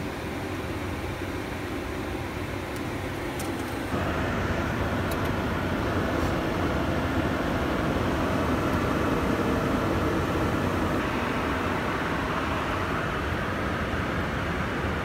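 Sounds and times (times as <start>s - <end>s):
light airplane engine drone: 0.0s - 15.0s
rushing air: 3.8s - 15.0s.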